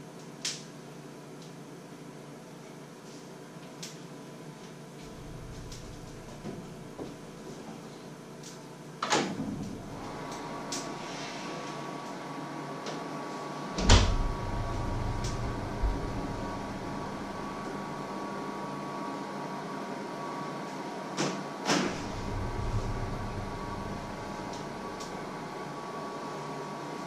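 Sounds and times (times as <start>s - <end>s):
steady hum: 4.9s - 8.2s, 9.4s - 19.7s, 21.8s - 27.0s.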